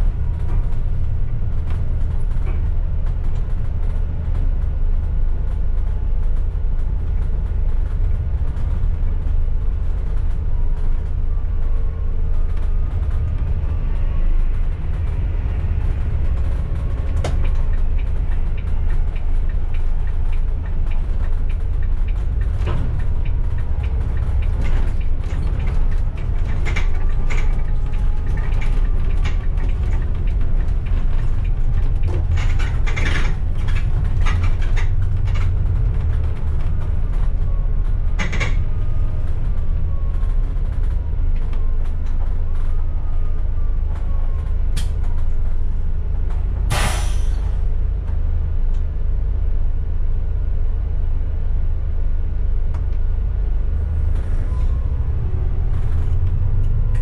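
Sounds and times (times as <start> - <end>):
bus body rattles and creaks: 0.0 - 57.0
bus engine and road rumble: 0.0 - 57.0
air brake hiss: 46.7 - 47.6.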